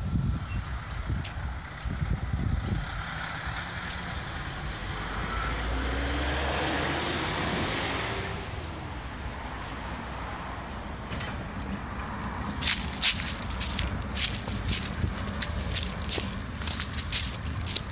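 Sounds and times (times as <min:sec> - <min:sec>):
tram wheels rumbling: 0:10.2 - 0:17.9.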